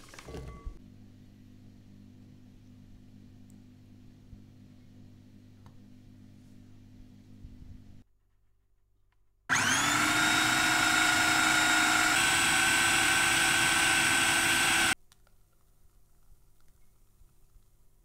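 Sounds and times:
food processor motor whine: 9.5s - 15.0s.

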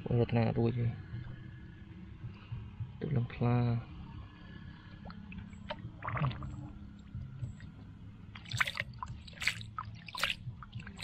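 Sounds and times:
water splashing and sloshing: 4.9s - 11.0s.

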